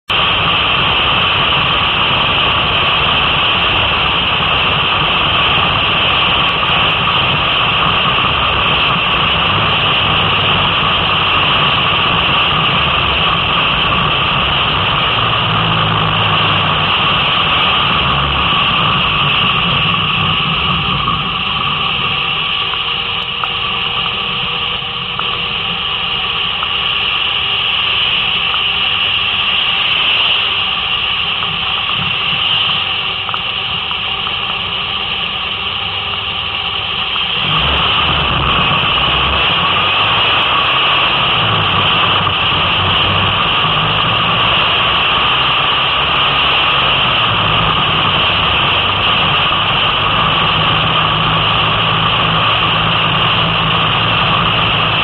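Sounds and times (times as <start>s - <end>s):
car engine from inside cabin: 0.1s - 55.0s.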